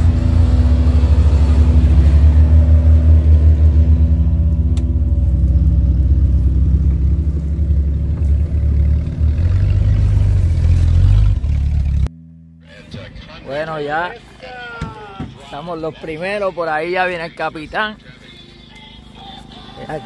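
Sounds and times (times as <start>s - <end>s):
engine idling deep rumble: 0.0s - 13.6s.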